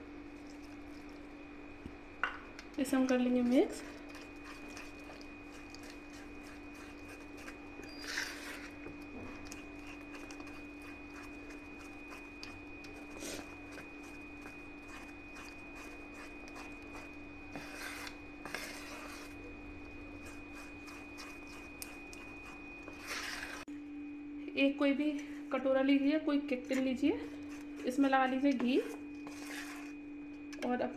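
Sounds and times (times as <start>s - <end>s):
faint hum: 0.0s - 30.9s
wire whisk scraping a steel bowl: 3.4s - 8.8s, 9.4s - 19.4s, 20.2s - 23.7s, 28.7s - 30.0s.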